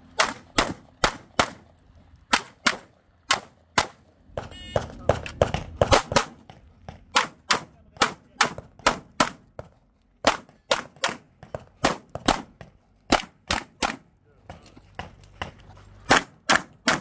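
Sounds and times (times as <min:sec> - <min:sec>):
pistol shots: 0:00.2 - 0:01.6, 0:02.3 - 0:06.4, 0:07.1 - 0:09.5, 0:10.2 - 0:14.0, 0:16.1 - 0:17.0.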